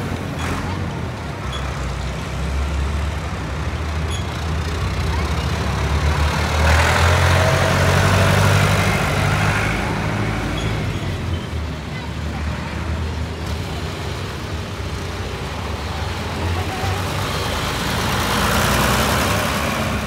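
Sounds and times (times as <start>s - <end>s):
diesel tractor engines running: 0.0s - 20.0s.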